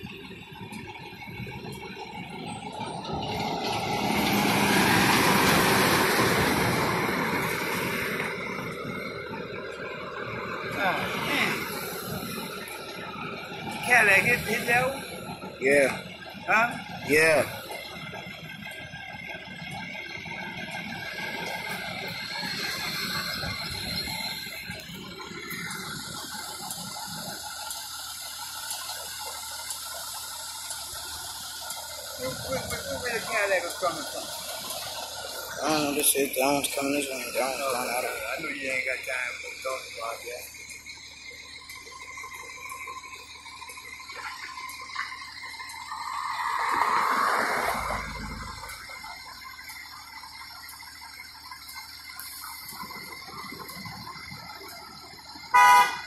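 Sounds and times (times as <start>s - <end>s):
fire engine running: 0.0s - 56.0s.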